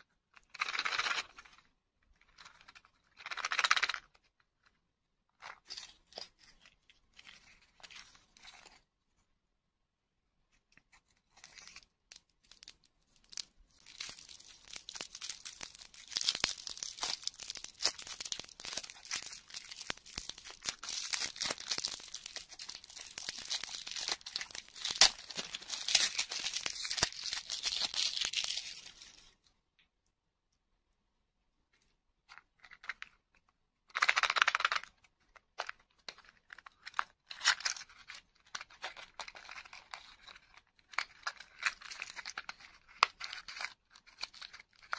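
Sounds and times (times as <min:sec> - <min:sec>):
plastic wrapper crinkling and tearing: 0:11.2 - 0:29.4, 0:33.9 - 0:44.9.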